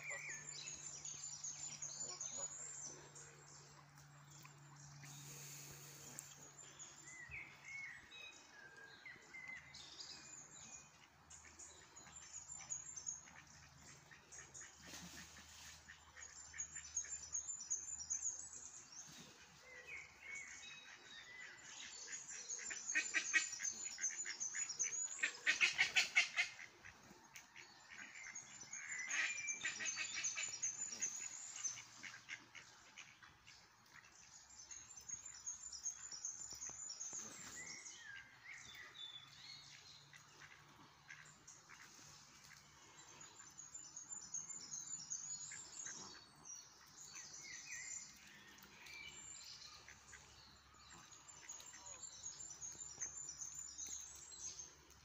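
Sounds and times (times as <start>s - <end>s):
small birds chirping: 0.0s - 55.0s
geese and ducks calling: 25.2s - 27.0s.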